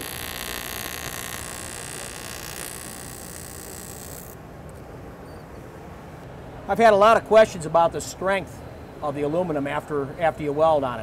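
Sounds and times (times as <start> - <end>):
welding arc hissing: 0.0 - 4.4.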